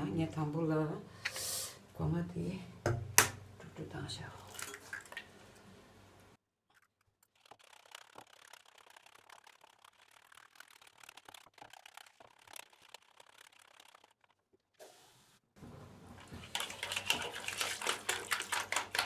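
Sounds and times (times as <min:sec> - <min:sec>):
wire whisk beating in plastic bowl: 0:16.4 - 0:19.0.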